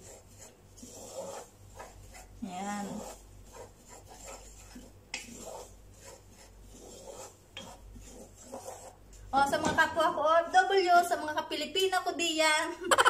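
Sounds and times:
wooden spoon scraping flour in pot: 0.0 - 9.7.

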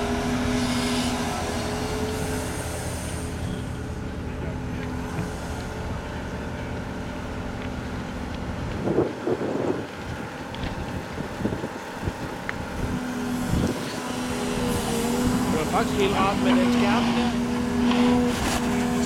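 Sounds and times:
excavator diesel engine running: 0.0 - 19.0.

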